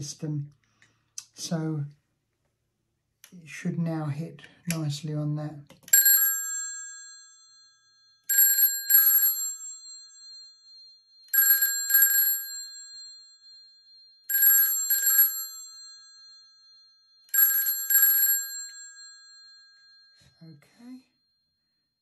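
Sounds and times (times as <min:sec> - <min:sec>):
telephone bell ringing: 0:05.9 - 0:20.4.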